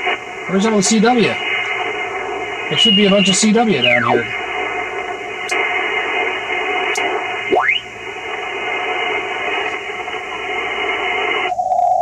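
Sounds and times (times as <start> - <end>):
narrow hollow radio noise: 0.0 - 12.0
radio static hiss: 0.0 - 12.0
rising radio whistle: 2.6 - 4.4, 7.5 - 7.9.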